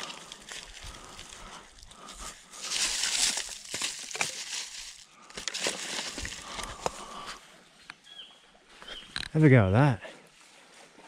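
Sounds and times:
dry leaves crunching: 0.0s - 7.2s
dry sticks snapping: 2.6s - 7.0s.

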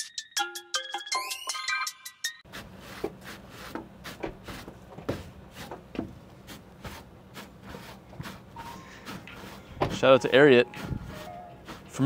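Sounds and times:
boots scuffing on bristle brush: 2.5s - 12.0s
footsteps on wooden deck: 2.5s - 12.0s.

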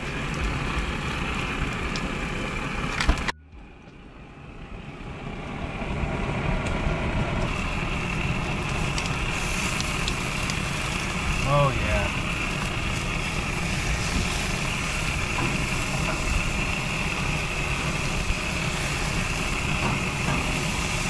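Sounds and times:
fish sizzling on a grill: 0.0s - 2.9s, 5.2s - 21.0s
faint crackles: 6.6s - 21.0s.

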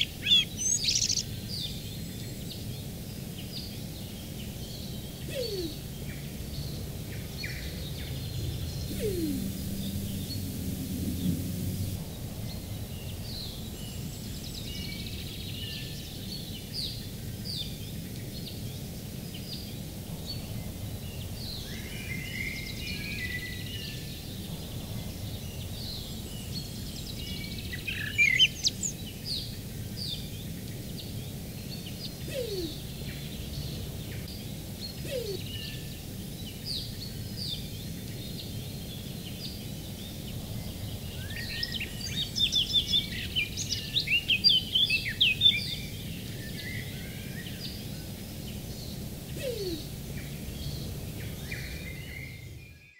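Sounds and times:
low background rumble: 0.0s - 52.8s
small birds chirping: 0.0s - 52.9s
pigeon cooing: 5.3s - 5.8s, 8.9s - 11.9s, 32.3s - 32.8s, 49.4s - 49.9s.

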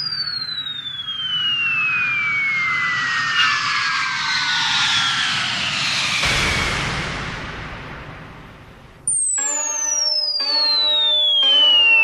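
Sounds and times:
jet aircraft flyby roar: 0.8s - 7.9s.

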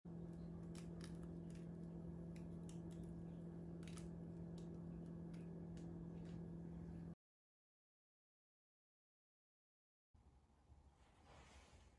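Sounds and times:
faint low hum: 0.1s - 7.2s.

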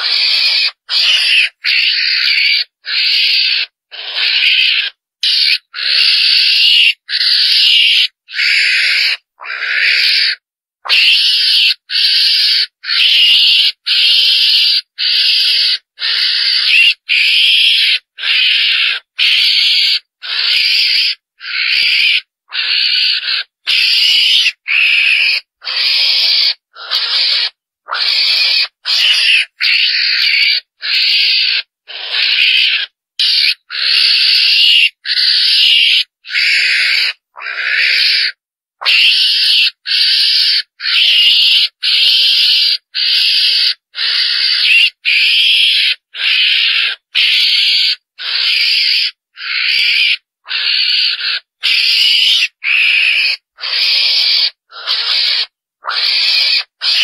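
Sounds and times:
animal squealing calls: 0.0s - 57.0s.

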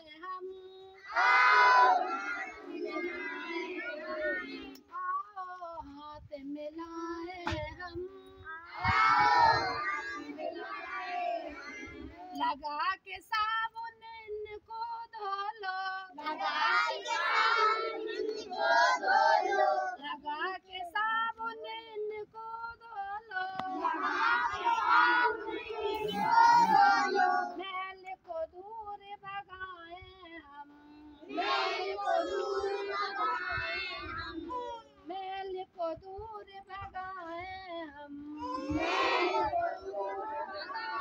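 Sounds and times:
woman singing: 0.0s - 1.0s, 3.4s - 8.7s, 12.4s - 16.3s, 20.0s - 24.0s, 25.0s - 31.2s, 33.6s - 41.0s
children singing in unison: 1.0s - 4.9s, 8.4s - 12.4s, 16.2s - 20.1s, 23.3s - 27.6s, 31.0s - 34.8s, 38.4s - 41.0s.

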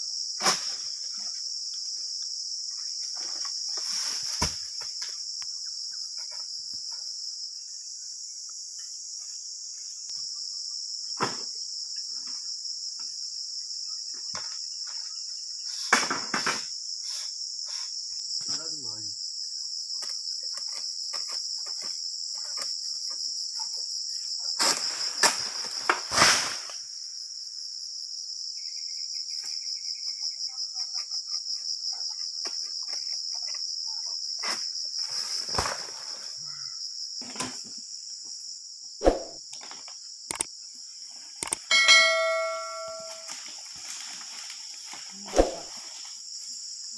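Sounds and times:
high-pitched insect chorus: 0.0s - 46.9s
knocks and thuds of harvesting: 3.2s - 5.0s, 11.2s - 11.5s, 15.9s - 16.7s, 24.6s - 26.6s.

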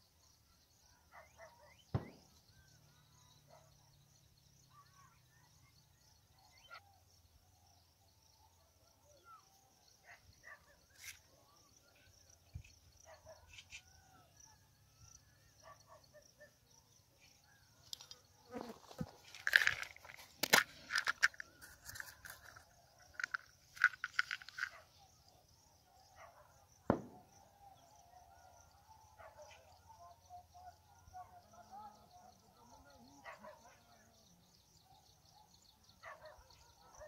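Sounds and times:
faint bird chirps: 0.0s - 19.0s.

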